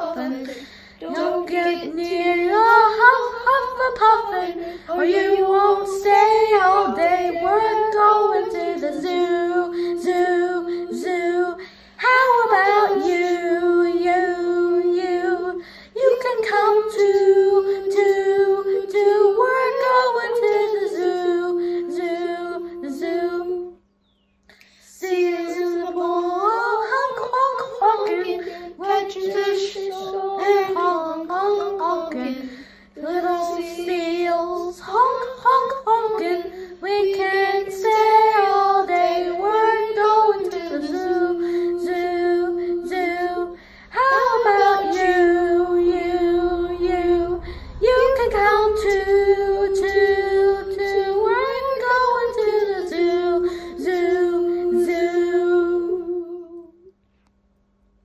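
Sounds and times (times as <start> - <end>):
children's choir singing: 0.0 - 23.7, 25.0 - 56.6.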